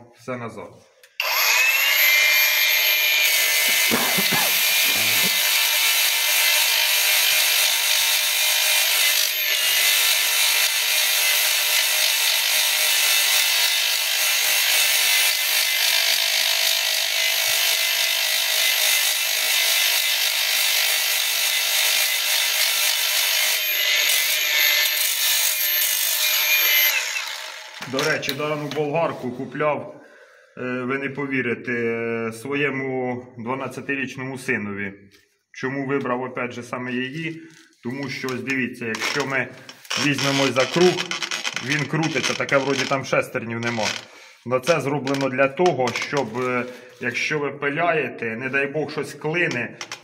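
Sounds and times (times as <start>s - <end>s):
angle grinder grinding steel: 1.1s - 28.9s, 37.4s - 47.2s.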